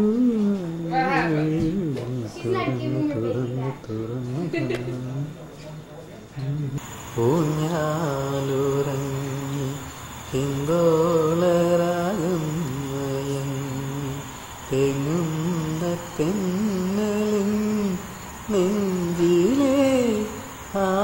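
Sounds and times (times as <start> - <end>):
person singing held ornamented notes: 6.8 - 21.0.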